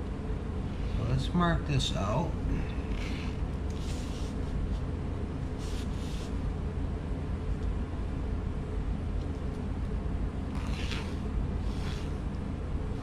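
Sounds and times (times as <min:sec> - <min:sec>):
low background hum: 0:00.0 - 0:13.0
pencil scratching along ruler: 0:10.6 - 0:12.2.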